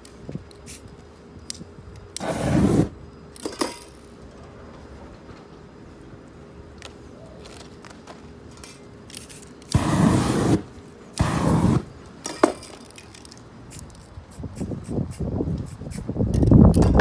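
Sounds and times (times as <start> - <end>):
aerosol spray can hiss: 9.3 - 10.6, 11.2 - 11.9.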